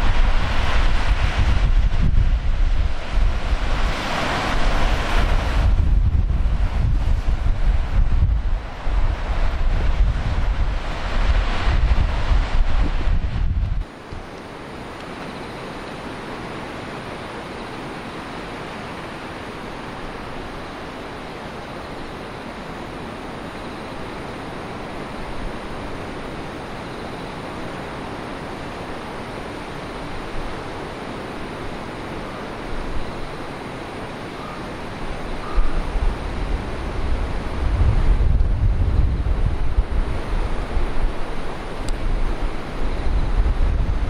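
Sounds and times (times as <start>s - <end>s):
wind buffeting microphone: 0.0s - 16.8s, 34.8s - 44.0s
waves breaking: 0.0s - 44.0s.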